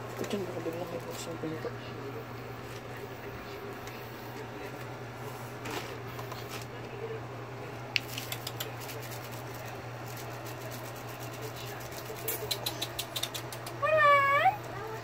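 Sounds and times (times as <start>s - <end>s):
steady low hum: 0.0s - 15.0s
puppy claws clicking on concrete: 8.0s - 13.9s.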